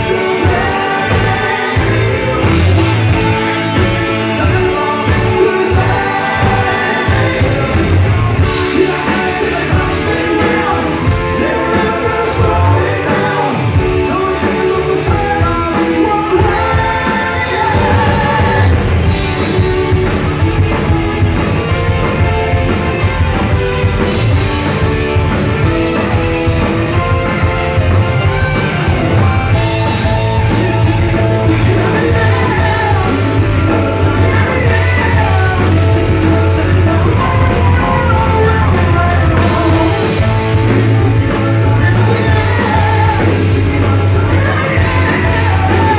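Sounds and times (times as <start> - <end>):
lead singer singing: 0.0 - 21.3, 28.8 - 45.9
live rock band playing: 0.0 - 45.9.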